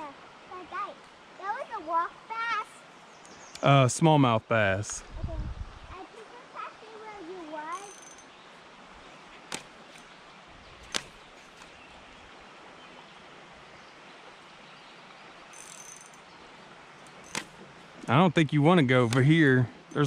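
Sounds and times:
outdoor hiss: 0.0s - 20.0s
fishing rod casting: 7.7s - 8.3s, 9.4s - 10.1s, 10.8s - 11.8s, 15.4s - 16.3s, 17.0s - 17.9s
reel and rod clicks: 7.7s - 8.3s, 9.5s - 10.1s, 10.8s - 11.8s, 15.5s - 16.3s, 17.0s - 17.6s, 19.0s - 20.0s.

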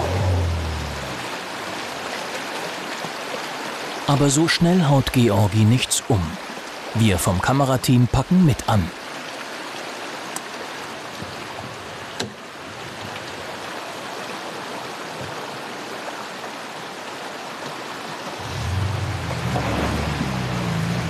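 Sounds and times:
low hum: 0.0s - 1.4s
stream rushing over stones: 0.0s - 21.0s.

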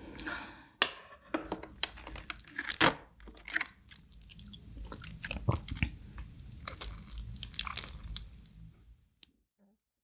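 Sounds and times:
chewing: 3.9s - 8.6s
crab shells clicking and crackling: 6.6s - 8.6s.

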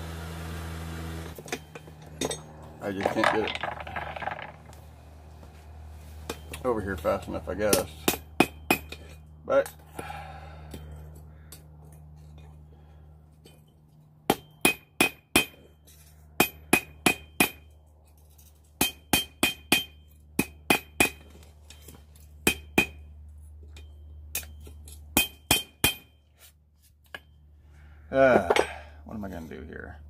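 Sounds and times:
hammer striking steel on anvil: 7.6s - 9.8s, 14.2s - 15.8s, 16.4s - 17.7s, 18.8s - 23.1s, 23.7s - 26.2s.

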